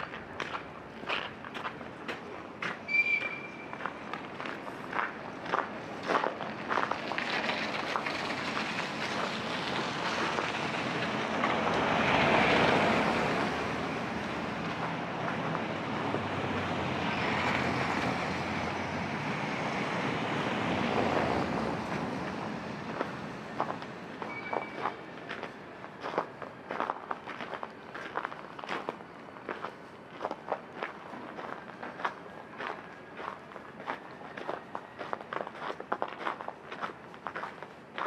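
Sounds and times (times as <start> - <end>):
road traffic passing: 0.0 - 38.0.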